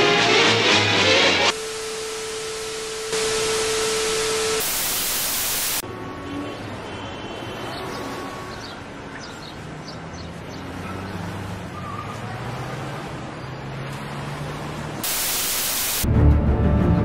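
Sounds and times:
loud hiss: 1.4 - 5.8, 15.0 - 16.1
steady hiss: 1.5 - 5.8, 15.0 - 16.0
loud dramatic music: 16.0 - 17.0.

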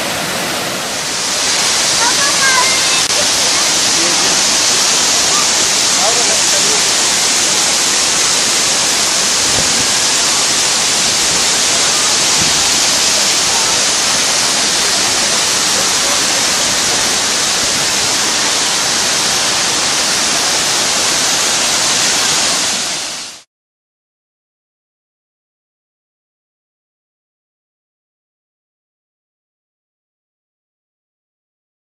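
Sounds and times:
waterfall rushing: 0.0 - 23.5.

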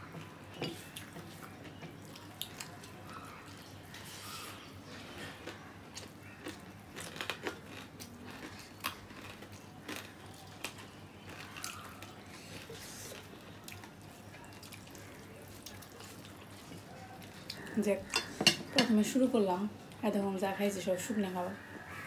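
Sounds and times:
wet chewing and lip-smacking: 0.0 - 4.2, 5.0 - 17.7.

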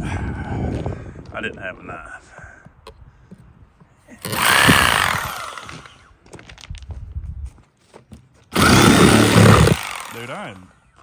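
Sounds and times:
power tool running: 4.2 - 6.0, 8.5 - 10.5.

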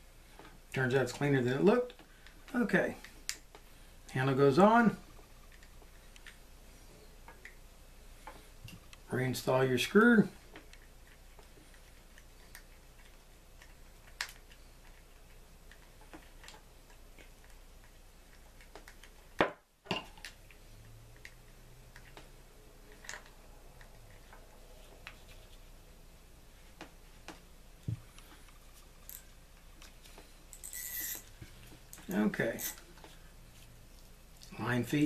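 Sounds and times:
screwdriver and metal parts clicking: 29.0 - 29.4, 30.5 - 31.3, 31.9 - 32.8.

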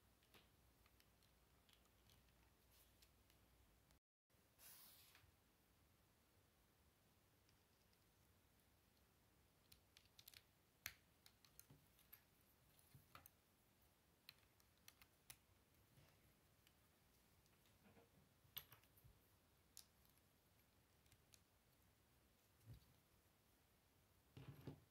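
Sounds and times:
plastic bricks clicking and snapping: 9.6 - 12.1.

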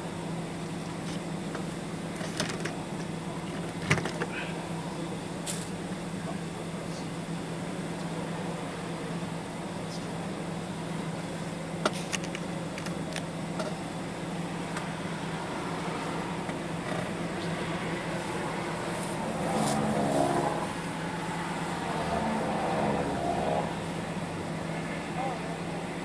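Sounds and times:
steady engine hum: 0.0 - 26.0
vehicle passing: 14.9 - 25.7.

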